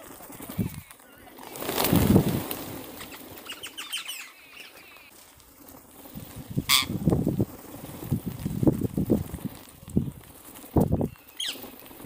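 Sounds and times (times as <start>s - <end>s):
parakeet wingbeats: 0.0s - 12.0s
parakeets squawking shrilly: 3.0s - 5.0s, 6.7s - 7.0s.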